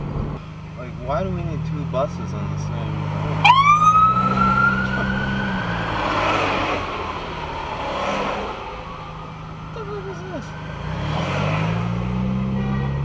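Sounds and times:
car engine humming: 0.0s - 13.0s
passing vehicle traffic noise: 0.0s - 13.0s
emergency siren wailing: 3.4s - 7.8s.

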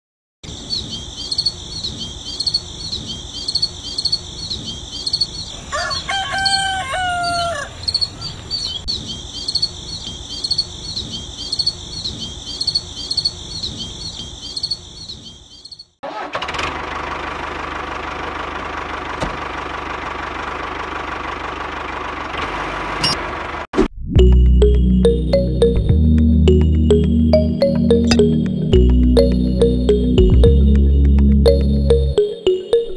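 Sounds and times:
rapid high chirping: 0.6s - 5.5s
rooster crowing: 5.6s - 8.4s.

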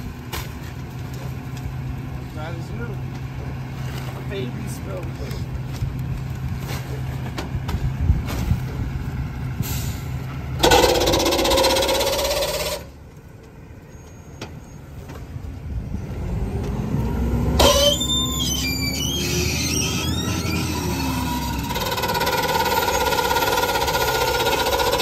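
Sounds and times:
garbage truck engine idling: 0.0s - 13.9s, 19.5s - 25.0s
hydraulic packer blade cycling: 10.6s - 12.9s, 17.6s - 25.0s
high metal squeals: 10.6s - 13.0s, 17.6s - 25.0s.

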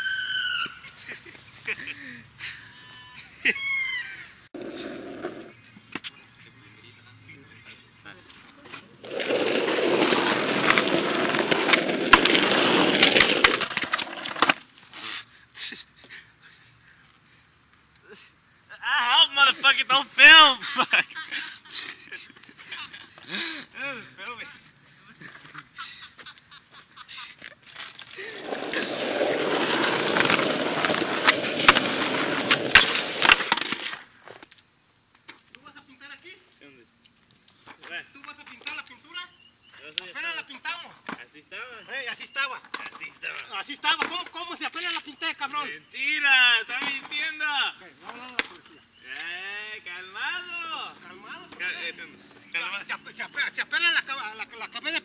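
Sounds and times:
skateboard wheels rolling on asphalt: 4.6s - 6.2s, 8.2s - 15.0s, 27.7s - 35.4s
skateboard clacks: 9.1s - 14.6s, 28.3s - 34.0s
skateboard clicks: 27.7s - 34.6s.

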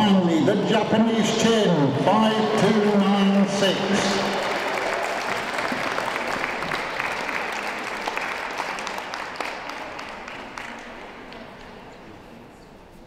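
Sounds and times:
audience applauding: 2.2s - 11.8s.

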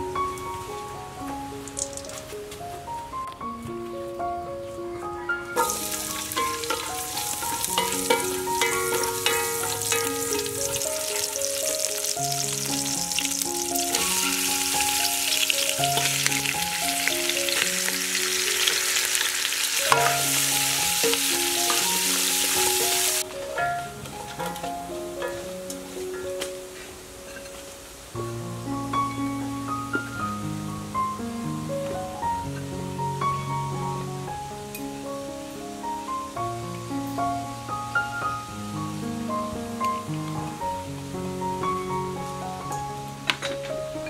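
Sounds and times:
melodic background music: 0.0s - 44.0s
ladle stirring in pot: 5.6s - 12.4s, 18.6s - 23.7s
food sizzling in hot oil: 5.6s - 26.0s.

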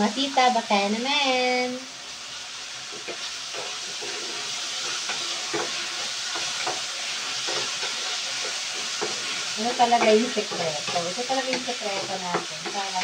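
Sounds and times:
food sizzling in a frying pan: 0.0s - 13.0s
wooden spatula scraping a pan: 2.9s - 13.0s.

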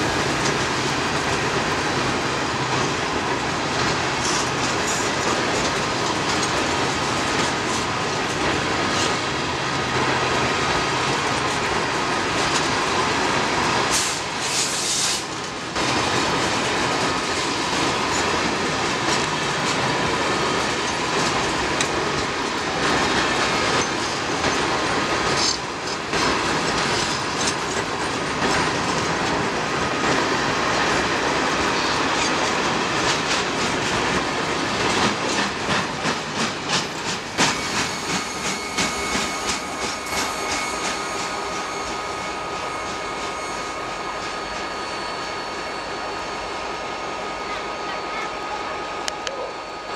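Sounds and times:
train wheels clattering over rail joints: 0.0s - 44.8s
thin steady squeal: 37.5s - 48.7s.

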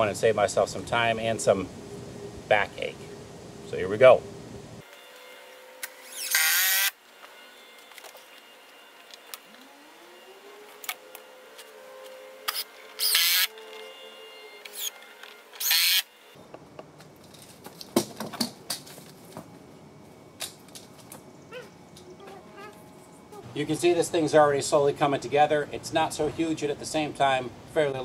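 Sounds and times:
impact driver driving screws: 5.8s - 7.0s, 12.5s - 13.5s, 15.6s - 16.0s.

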